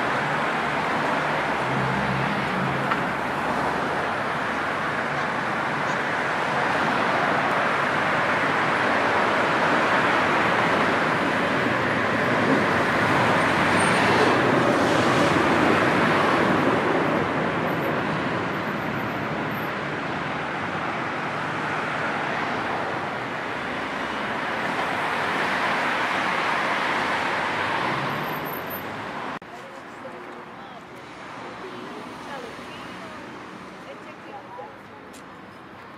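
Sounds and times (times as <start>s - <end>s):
passing cars: 0.0s - 35.9s.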